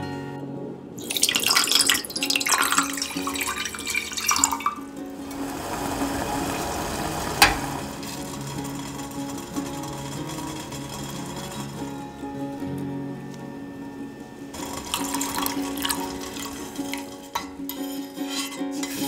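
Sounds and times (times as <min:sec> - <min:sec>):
soft guitar music: 0:00.0 - 0:19.0
water pouring into metal saucepan: 0:01.0 - 0:11.6, 0:14.6 - 0:19.0.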